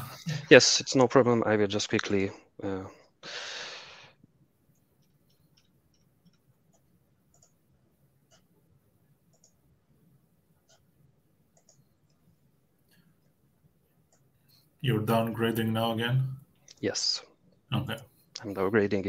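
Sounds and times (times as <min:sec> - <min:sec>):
keyboard and mouse clicks: 0:04.8 - 0:07.6, 0:09.3 - 0:09.6, 0:11.5 - 0:12.3.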